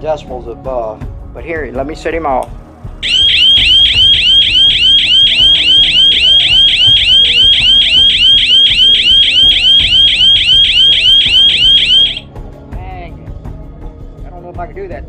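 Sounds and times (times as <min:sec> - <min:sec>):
electronic alarm siren warbling: 0:03.0 - 0:12.2.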